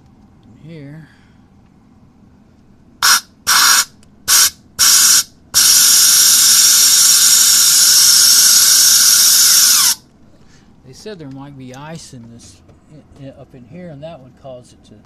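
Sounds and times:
compressed air hissing from nozzle: 3.0s - 10.0s.

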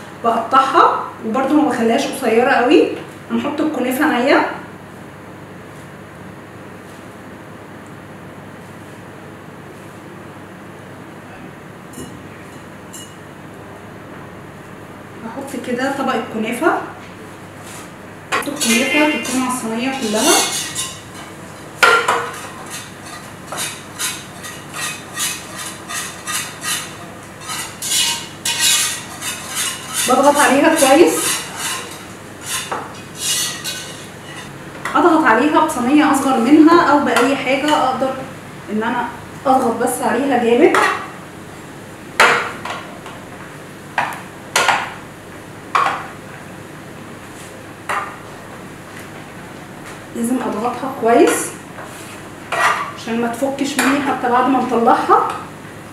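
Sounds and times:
metal clanking on baking tray: 18.4s - 34.5s.

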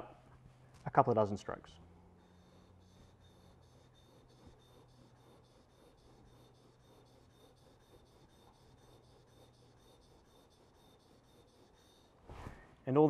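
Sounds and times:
chisel scraping on water stone: 2.4s - 12.2s.

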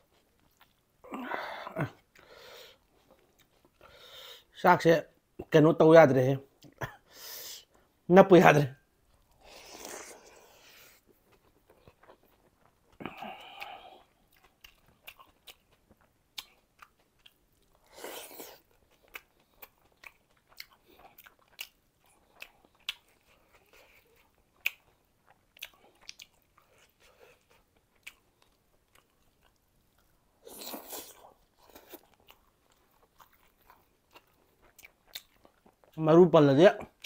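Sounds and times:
close chewing with wet mouth clicks: 0.0s - 0.9s, 2.0s - 3.9s, 9.1s - 36.0s.

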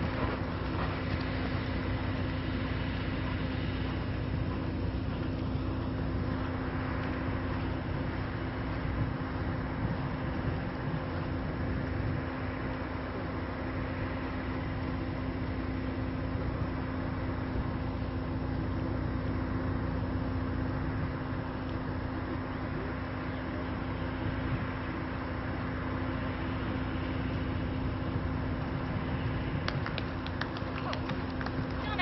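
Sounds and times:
constant low hum: 0.0s - 32.0s
low rumble and hiss: 0.0s - 32.0s.

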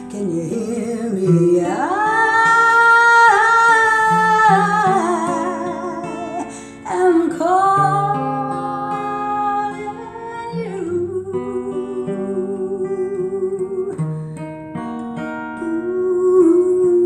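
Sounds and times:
acoustic guitar chords: 0.0s - 17.0s
woman singing: 0.0s - 17.0s.

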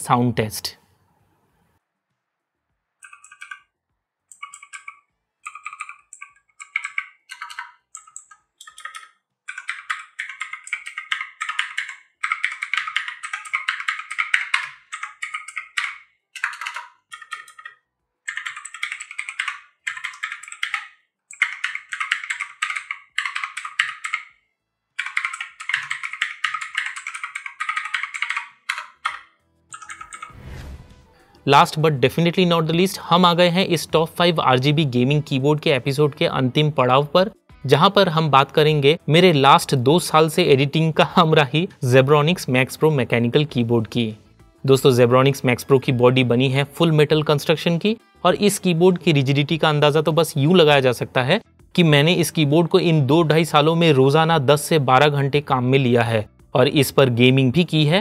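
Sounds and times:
clicky mechanical keyboard typing: 3.0s - 3.7s, 4.3s - 24.4s, 25.0s - 30.3s.

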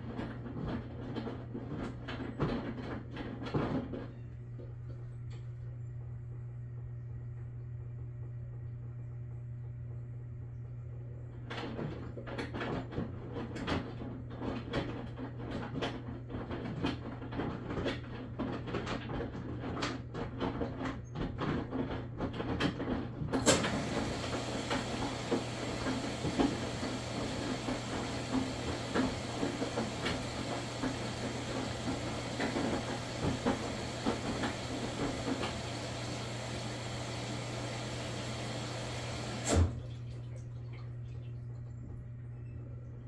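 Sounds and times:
washing machine knocks and clicks: 0.0s - 4.1s, 11.4s - 40.0s
washing machine motor hum: 0.0s - 43.0s.

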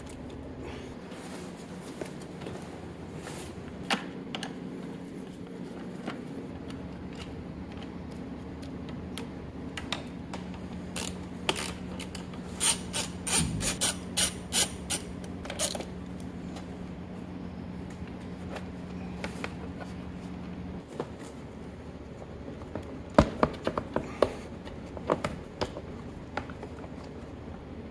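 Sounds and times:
steady low hum: 0.0s - 27.9s
hand ratchet clicking: 11.0s - 15.8s.

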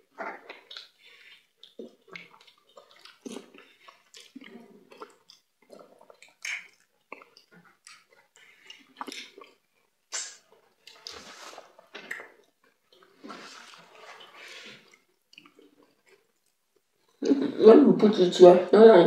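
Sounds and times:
fingers squishing food: 0.1s - 11.1s
wet chewing: 0.1s - 17.2s
lip smacks: 0.3s - 11.2s.

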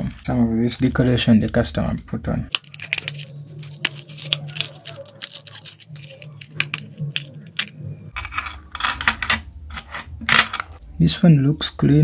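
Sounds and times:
small clicks and scrapes: 2.5s - 10.7s.

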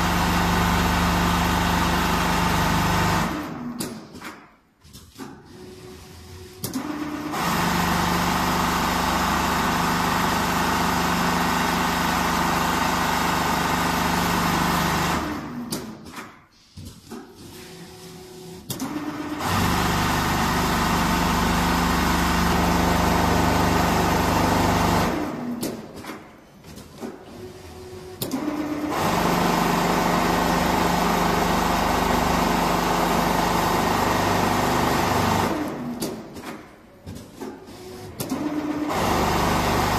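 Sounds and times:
sewing machine stitching with hum: 5.2s - 16.0s, 17.1s - 25.6s, 27.2s - 36.8s, 37.6s - 39.9s.

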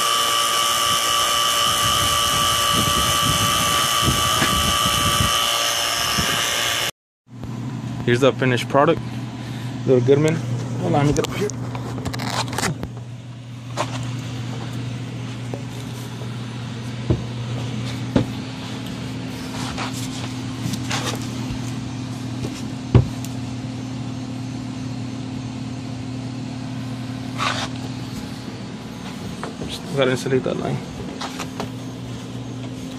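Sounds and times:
low hum: 0.6s - 29.9s
knocks on plywood floor: 18.1s - 18.4s, 22.9s - 23.2s.

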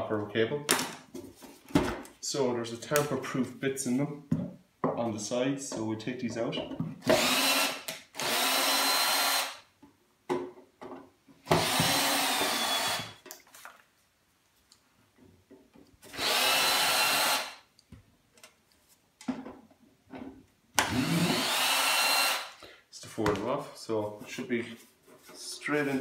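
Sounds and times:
cordless drill spinning out screws: 7.0s - 9.6s, 11.6s - 13.2s, 16.1s - 17.6s, 20.8s - 22.6s.

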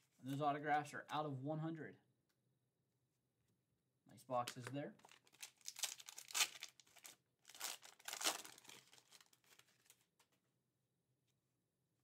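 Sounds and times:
foil wrapper tearing and crinkling: 5.0s - 10.0s.

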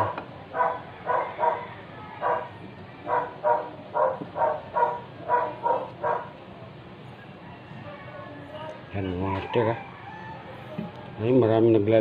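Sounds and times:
dog barking: 0.0s - 6.4s.

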